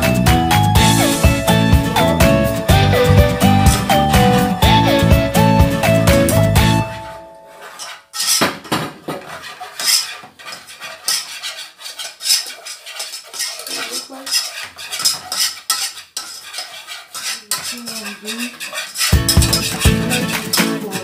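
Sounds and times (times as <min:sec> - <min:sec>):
whisk scraping a saucepan: 0:00.8 - 0:02.1, 0:02.7 - 0:21.0
spoon scraping a saucepan: 0:06.4 - 0:21.0.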